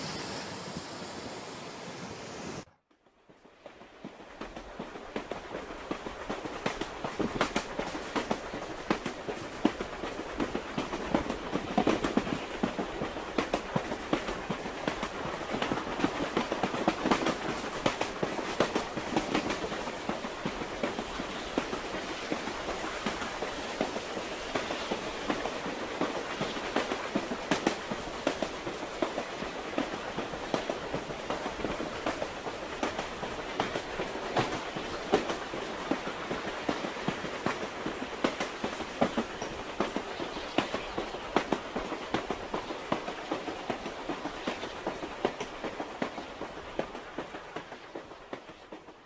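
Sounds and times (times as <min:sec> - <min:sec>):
train carriage rumble: 0:00.0 - 0:49.0.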